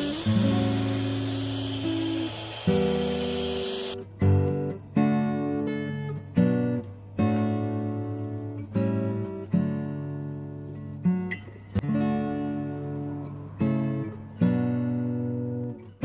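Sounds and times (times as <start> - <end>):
acoustic guitar strumming chords: 0.0 - 15.6.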